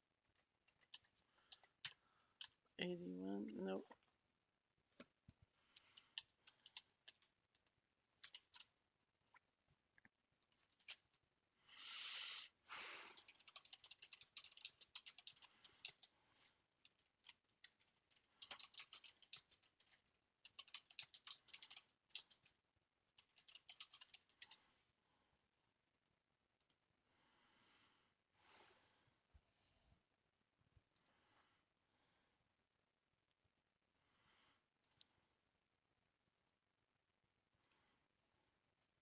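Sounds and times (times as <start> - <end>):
keyboard typing clicks: 5.8 - 7.3, 8.2 - 8.7, 13.2 - 16.1, 16.8 - 22.5, 23.2 - 24.6.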